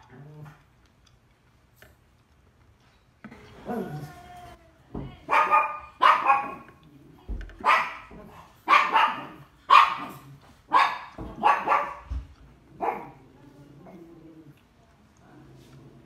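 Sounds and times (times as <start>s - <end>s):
dog barking: 5.3s - 6.7s, 7.6s - 13.2s.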